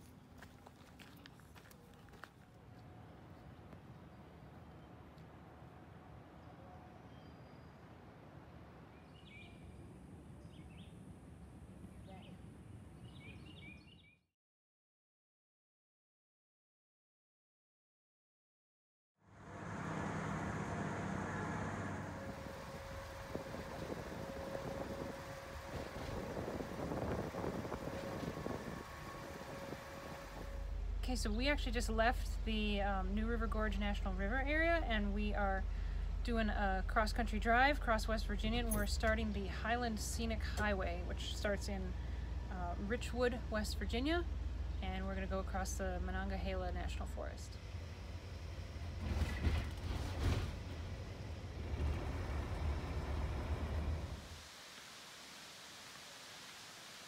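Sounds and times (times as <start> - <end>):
vehicle engine and tyre rumble: 19.2 - 54.3
faint hum: 19.3 - 54.3
wind on microphone: 22.3 - 30.6.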